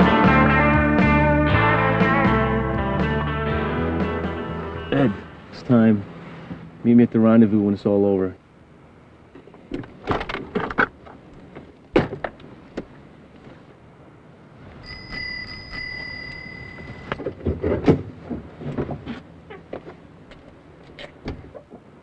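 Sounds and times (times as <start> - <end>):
bicycle bell ringing: 14.8 - 17.2.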